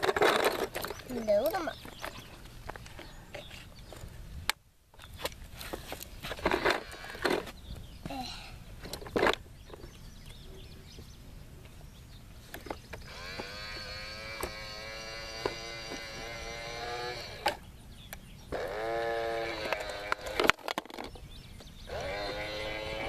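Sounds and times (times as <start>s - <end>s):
toy truck motor whirring: 6.4s - 7.5s, 13.0s - 17.6s, 18.5s - 20.9s, 21.9s - 23.0s.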